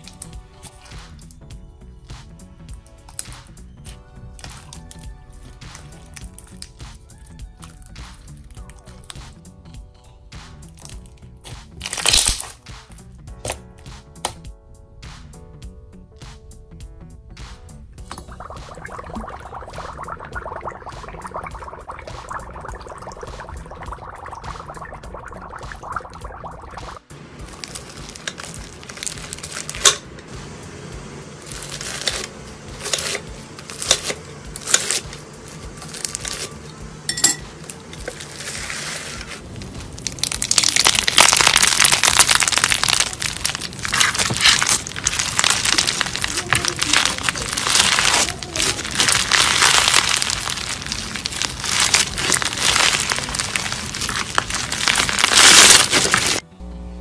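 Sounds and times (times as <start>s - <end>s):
slime crackling and popping: 0.0s - 1.5s, 2.2s - 9.4s, 10.4s - 14.4s, 18.0s - 30.1s, 31.4s - 36.8s, 37.6s - 56.4s
dry ice bubbling in liquid: 18.0s - 30.3s, 30.9s - 56.4s.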